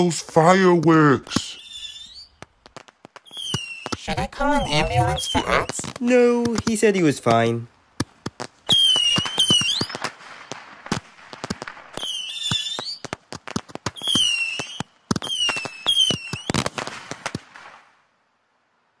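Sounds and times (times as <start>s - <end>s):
firework cracks and bangs: 0.1s - 18.1s
whistling rockets: 1.0s - 6.1s, 8.4s - 18.0s.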